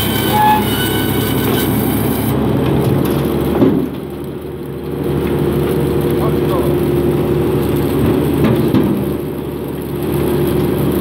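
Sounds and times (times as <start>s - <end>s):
log saw cutting: 0.0s - 4.4s
tractor engine running: 0.0s - 11.0s.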